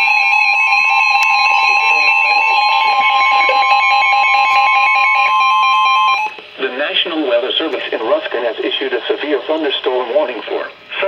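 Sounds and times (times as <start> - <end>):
fast-pulsing alarm beeps: 0.0 - 6.4
steady alert tone: 0.0 - 6.4.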